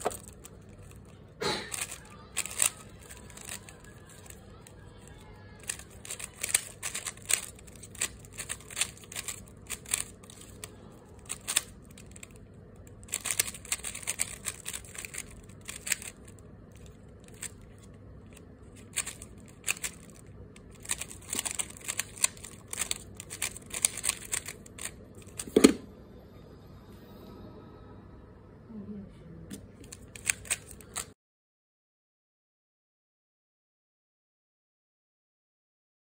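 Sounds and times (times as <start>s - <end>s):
puzzle cube plastic clicks: 0.0s - 25.7s, 29.8s - 31.1s.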